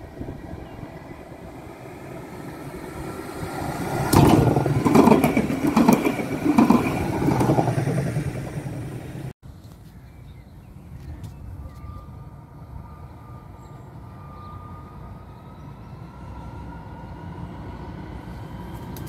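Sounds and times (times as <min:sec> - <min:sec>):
tram rolling past: 0:00.0 - 0:09.3, 0:11.4 - 0:19.0
wheels clacking over rail joints: 0:03.4 - 0:09.3.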